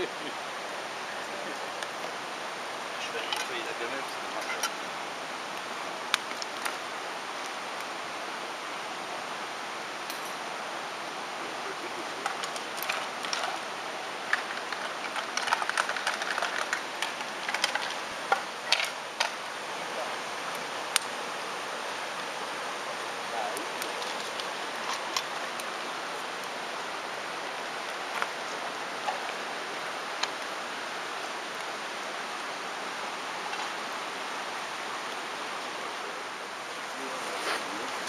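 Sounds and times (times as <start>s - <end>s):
river flowing over stones: 0.0s - 38.0s
mess tin scraping and rattling: 14.3s - 19.4s.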